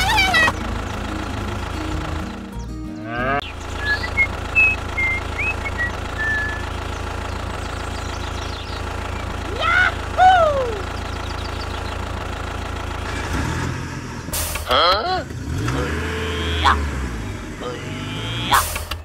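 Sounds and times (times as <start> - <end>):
motor idling drone: 0.0 - 14.4, 15.3 - 19.0
bird chirps: 2.2 - 9.4, 10.6 - 12.0
animal calls rising and falling: 15.7 - 18.8.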